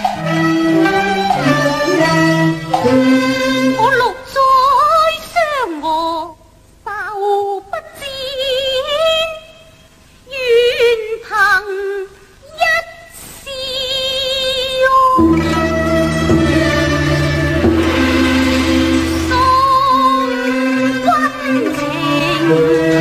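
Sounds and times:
opera ensemble playing: 0.0s - 5.4s, 15.1s - 23.0s.

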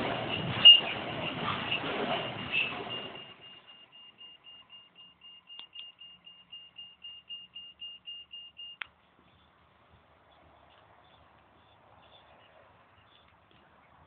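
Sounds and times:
freight train rumble: 0.0s - 3.4s.

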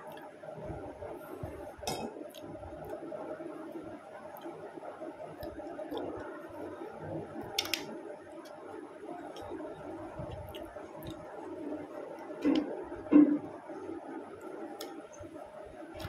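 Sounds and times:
soft chewing: 3.7s - 7.8s, 8.4s - 12.7s.

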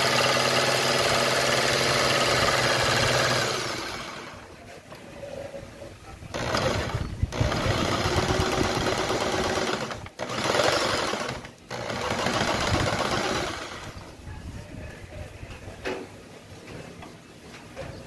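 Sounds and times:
jigsaw cutting plywood: 0.0s - 4.4s, 6.3s - 14.0s.

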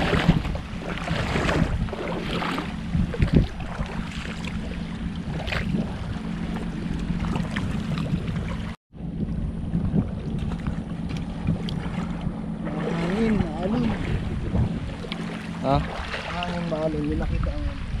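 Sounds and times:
splashing steps in shallow water: 0.0s - 8.8s
low hum: 0.0s - 18.0s
wind on microphone: 0.0s - 18.0s.

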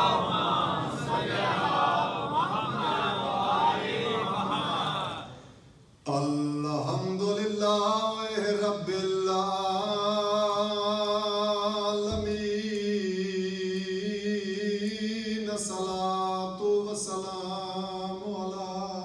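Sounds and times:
man chanting a lament: 6.1s - 19.0s.

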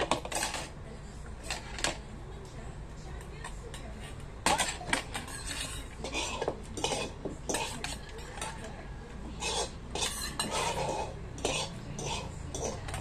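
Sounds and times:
metal spoons scraping a pot: 0.0s - 0.8s, 3.8s - 13.0s.

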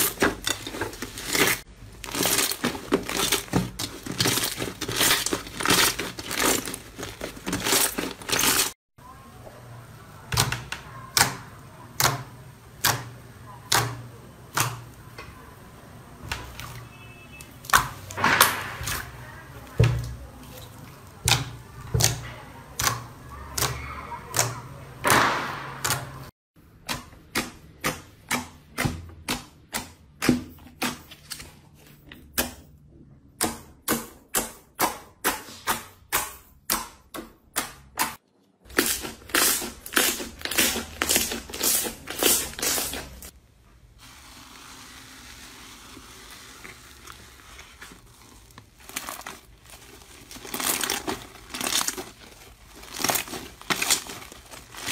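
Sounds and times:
slime crackling: 0.0s - 8.8s, 38.7s - 43.4s, 44.1s - 54.9s.

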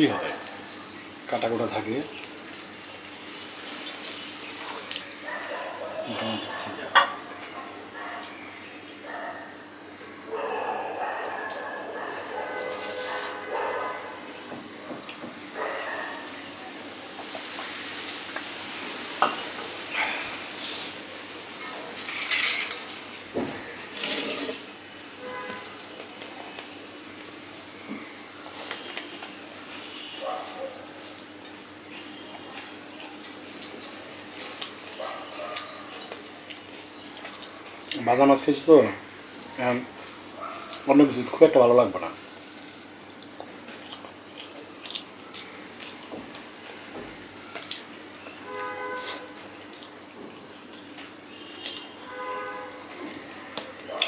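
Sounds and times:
man chewing with lip smacks: 31.0s - 38.0s, 42.5s - 46.5s, 47.5s - 48.3s, 49.0s - 52.0s, 52.8s - 54.0s.

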